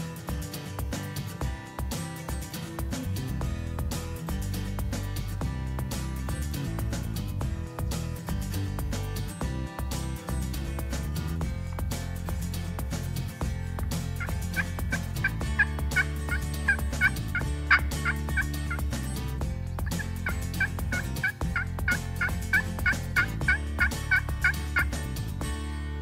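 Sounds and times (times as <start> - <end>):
turkey yelps: 19.9 - 24.9.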